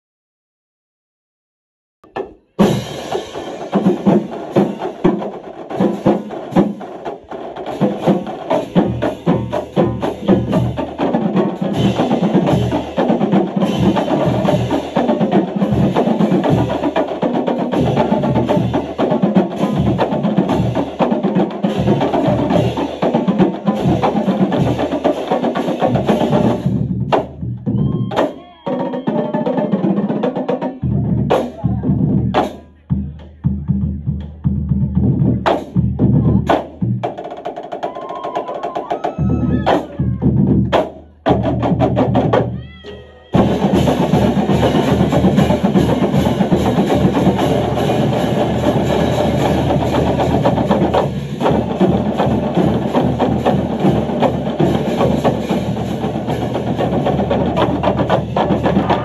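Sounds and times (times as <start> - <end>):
bass drums: 2.0 - 28.3, 30.8 - 37.2, 39.1 - 59.0
snare drums: 2.0 - 59.0
tenor drums: 2.0 - 59.0.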